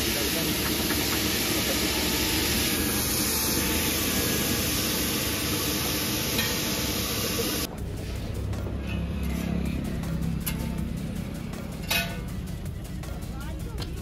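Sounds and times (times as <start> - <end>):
food sizzling in pan: 0.0 - 7.7.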